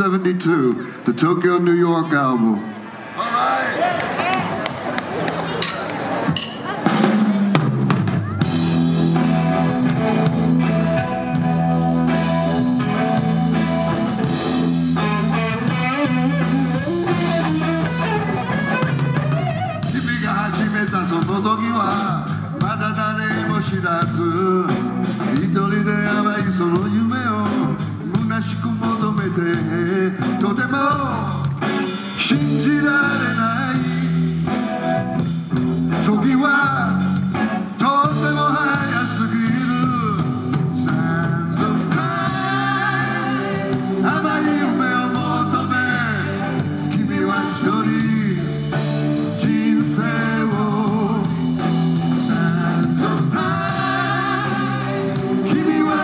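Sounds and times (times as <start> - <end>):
drums: 3.9 - 56.0
electric guitar: 4.7 - 56.0
bass guitar: 5.2 - 56.0
man singing: 19.8 - 34.3, 35.9 - 56.0.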